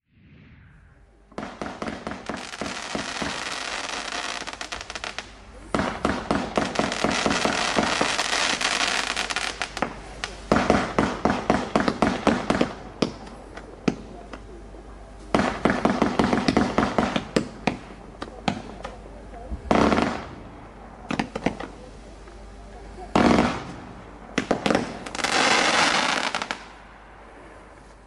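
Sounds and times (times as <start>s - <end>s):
crackling firework stars: 0.0s - 28.0s
firework launch pops: 21.0s - 21.8s.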